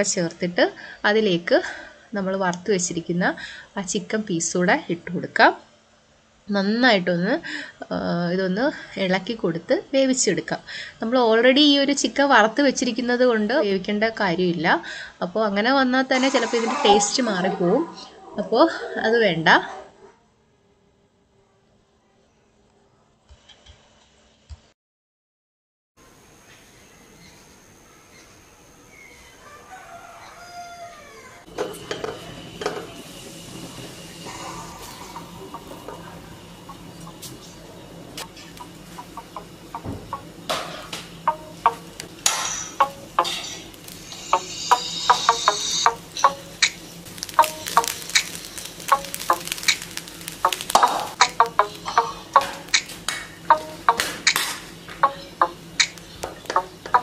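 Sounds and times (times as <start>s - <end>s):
rooster crowing: 29.2s - 31.5s
plucked background music: 40.1s - 57.0s
rice stirred in a steel pot: 47.1s - 51.2s.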